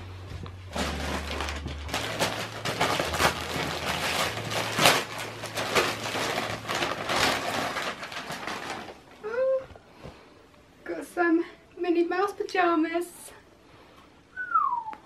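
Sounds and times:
paper gift bag rustling: 0.6 - 9.2
wrapping paper crinkling and tearing: 0.7 - 9.3.

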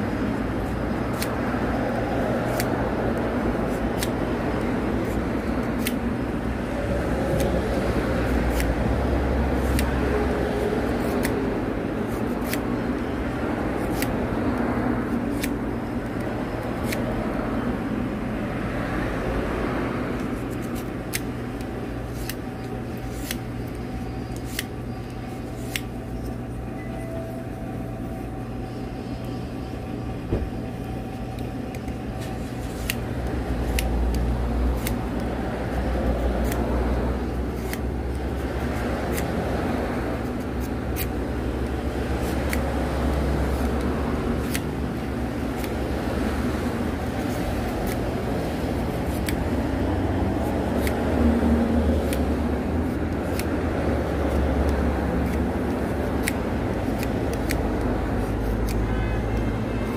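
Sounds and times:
knife whittling wood clicks: 2.4 - 6.1, 20.1 - 26.3, 32.8 - 38.2, 51.9 - 58.8.

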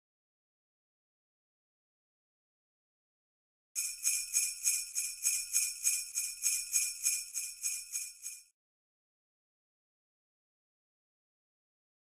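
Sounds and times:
jingle bells shaken: 3.8 - 8.5.

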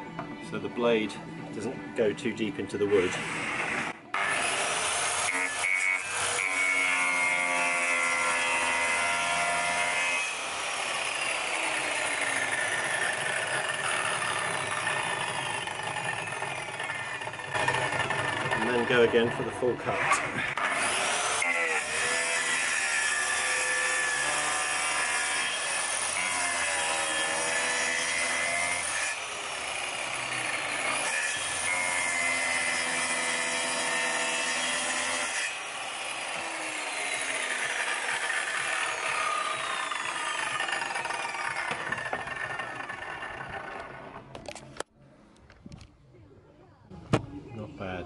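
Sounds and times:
circular saw cutting plywood: 2.8 - 44.3
saw motor whine: 8.1 - 19.1, 34.6 - 44.0.

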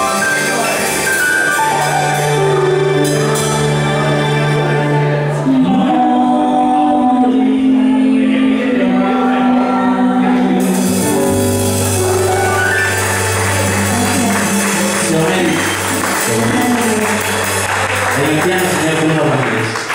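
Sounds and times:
live latin band playing: 0.0 - 5.6, 10.6 - 19.9
voices singing long notes: 2.4 - 18.5.

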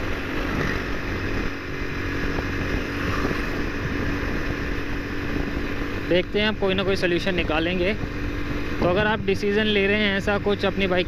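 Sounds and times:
wind noise on microphone: 0.0 - 6.0
motorcycle engine cruising: 0.0 - 11.0.

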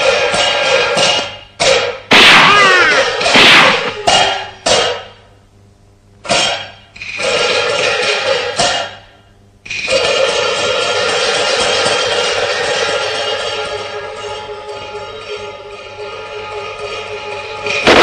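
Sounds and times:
cymbal and gong crashes: 9.7 - 18.0.

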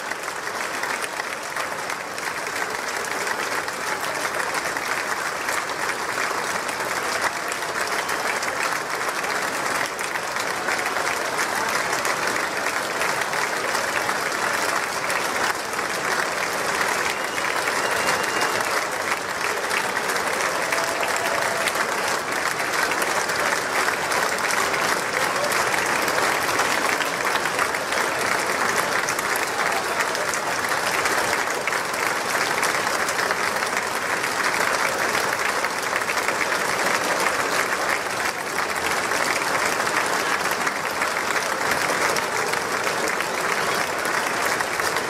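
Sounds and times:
audience applauding: 0.0 - 45.0.

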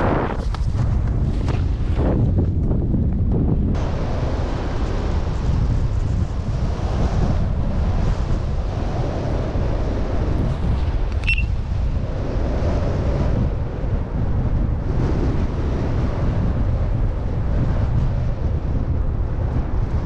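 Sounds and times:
wind buffeting microphone: 0.0 - 20.0
short high chirp: 11.2 - 11.5.

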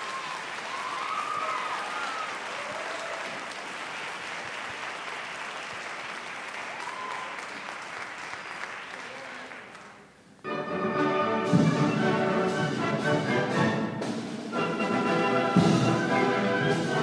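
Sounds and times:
audience cheering: 0.0 - 9.6
audience applauding: 0.0 - 10.3.

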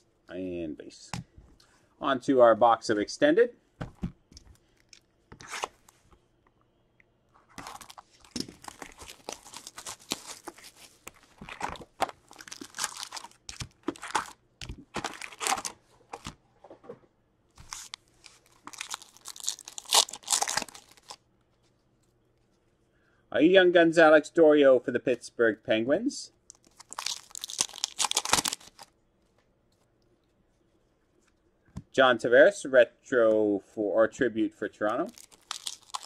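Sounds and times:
cardboard rustling: 7.5 - 16.4
foil card packs ripping open: 7.6 - 15.8, 17.6 - 21.2, 26.6 - 28.9, 35.1 - 36.0.

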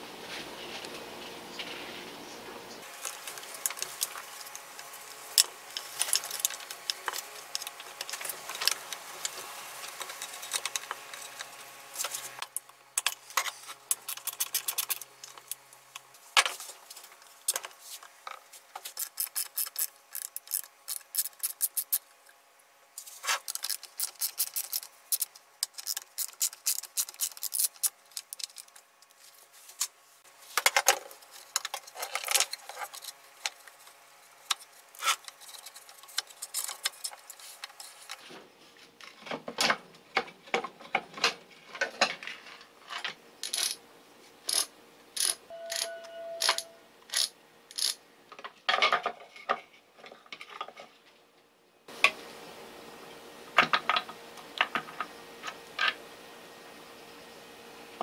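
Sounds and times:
hands handling plastic and metal parts: 2.8 - 22.0, 23.0 - 38.4.

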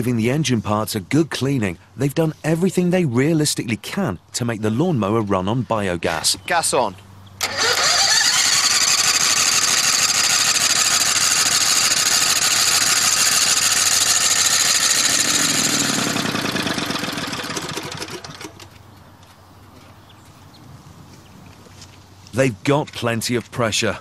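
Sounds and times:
lawnmower engine running: 7.4 - 18.9.

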